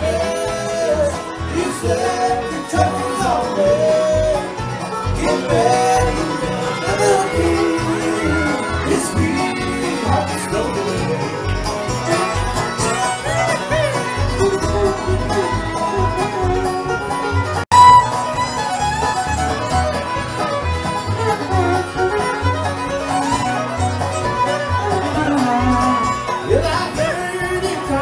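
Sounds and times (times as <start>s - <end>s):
bluegrass band playing: 0.0s - 28.0s
fiddle playing lead: 0.0s - 28.0s.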